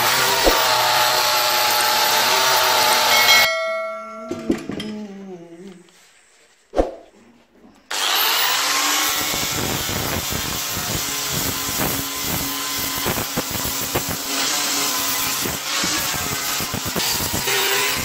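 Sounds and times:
angle grinder sanding metal: 0:00.0 - 0:03.5, 0:07.9 - 0:18.0.

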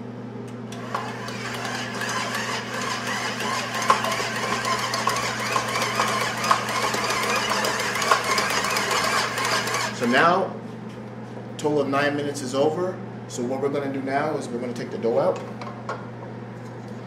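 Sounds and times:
stand mixer motor hum: 0:00.7 - 0:10.1.

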